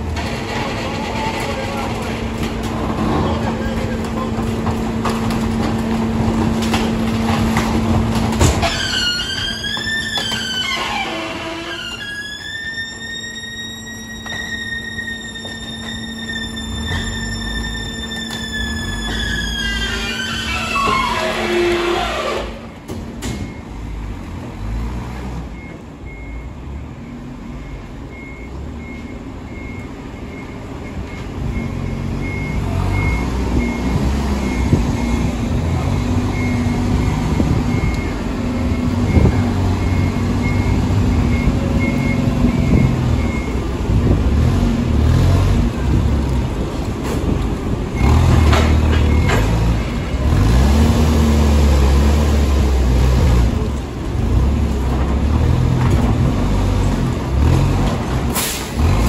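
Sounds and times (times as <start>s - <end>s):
diesel engines running: 0.0s - 59.0s
vehicle back-up alarm beeping: 12.0s - 20.0s, 23.2s - 44.2s, 46.8s - 50.6s.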